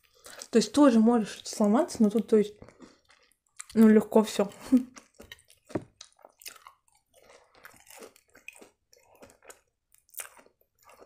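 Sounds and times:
chewing mouth clicks: 0:04.8 - 0:11.0.

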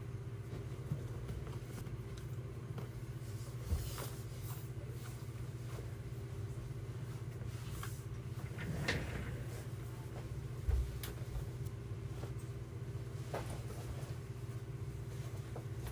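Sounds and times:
low mechanical hum: 0:00.0 - 0:15.9
clothes rustling and knocks: 0:07.0 - 0:15.9.

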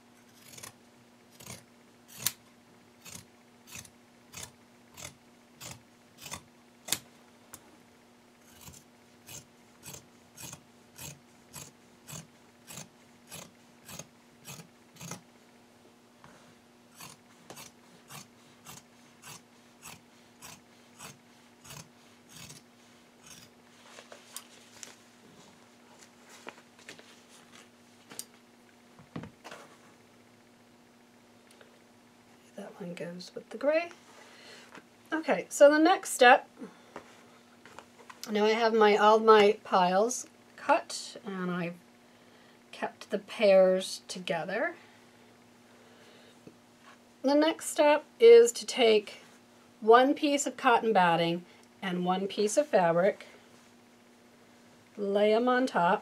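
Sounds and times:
fabric shears snipping: 0:00.3 - 0:02.4, 0:03.0 - 0:07.1, 0:08.5 - 0:15.2, 0:17.0 - 0:22.6, 0:23.2 - 0:23.5.

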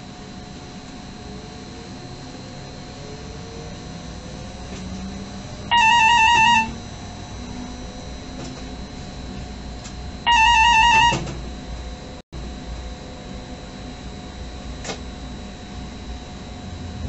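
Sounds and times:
moving train hum: 0:00.5 - 0:17.0
electronic warbling alert tone: 0:05.7 - 0:06.8, 0:10.3 - 0:11.2.

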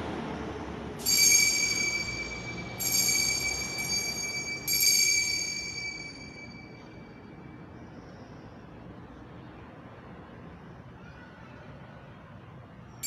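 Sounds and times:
altar bell ringing: 0:01.0 - 0:07.8.

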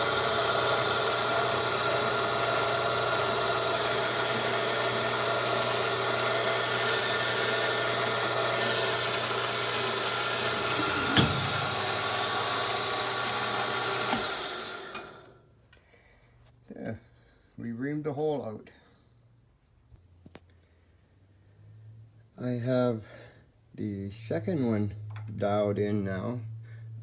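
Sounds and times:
milling machine whining hum: 0:00.0 - 0:15.4.

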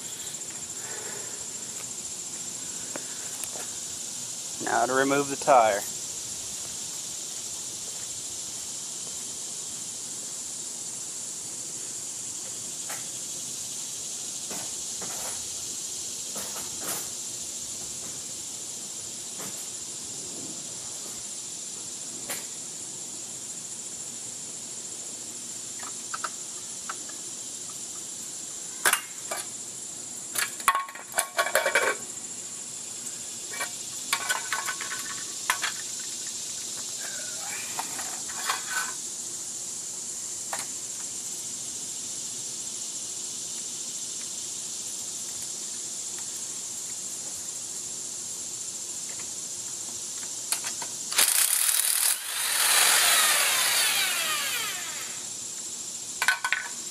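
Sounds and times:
electric impact wrench: 0:51.1 - 0:55.3.

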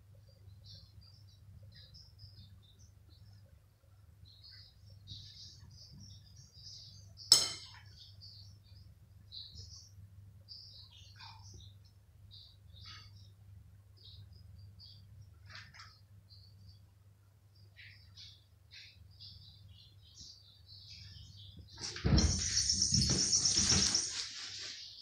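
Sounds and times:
bird chirping: 0:00.1 - 0:25.0.

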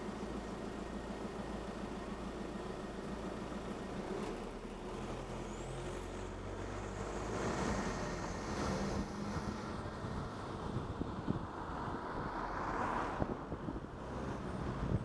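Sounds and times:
road noise: 0:00.0 - 0:15.0
car engine accelerating: 0:04.1 - 0:15.0
wind rushing over microphone: 0:07.5 - 0:15.0.

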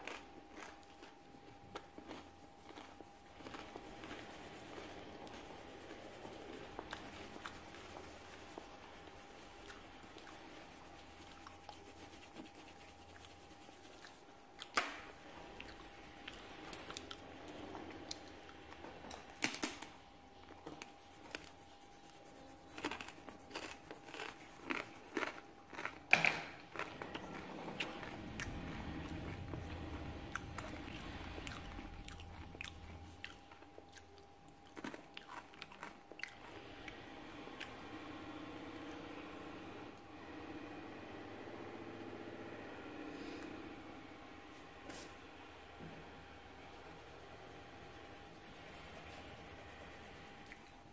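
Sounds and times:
faint high hum: 0:00.0 - 0:50.9
pencil scratching on paper: 0:02.6 - 0:17.0, 0:20.8 - 0:25.1, 0:46.3 - 0:50.9.

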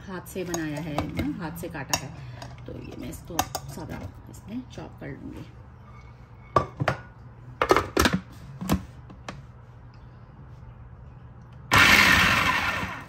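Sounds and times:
food chopper motor pulsing: 0:11.7 - 0:13.0.

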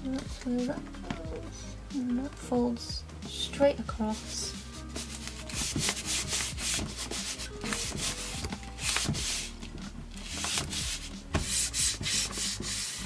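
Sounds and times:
hand rubbing paper: 0:04.1 - 0:13.0.

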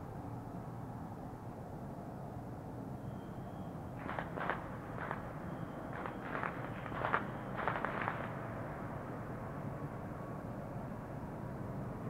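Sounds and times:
distant traffic rumble: 0:02.8 - 0:12.0
distant firecracker pops: 0:06.0 - 0:08.3.

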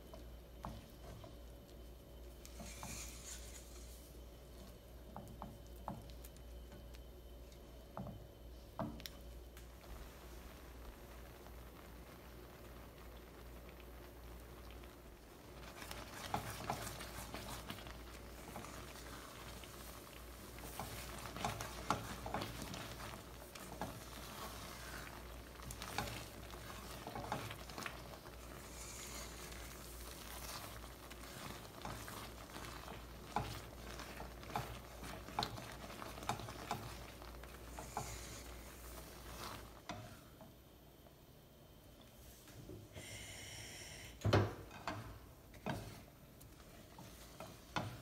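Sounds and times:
mixture sizzling and bubbling: 0:00.0 - 0:48.0
spatula scraping a pan: 0:02.4 - 0:04.0, 0:15.7 - 0:40.2.

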